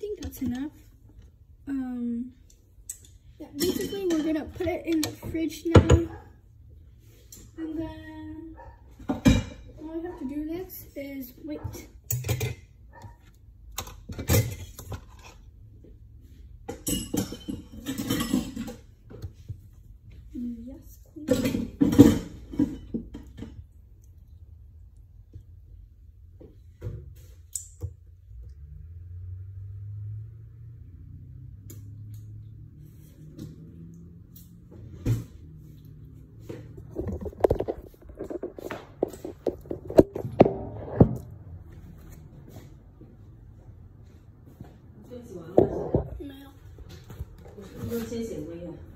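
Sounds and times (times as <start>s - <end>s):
kitchenware clinking and knocking: 3.4s - 6.3s, 9.0s - 9.8s, 11.8s - 12.8s, 13.8s - 15.4s, 16.6s - 19.2s, 21.2s - 23.7s.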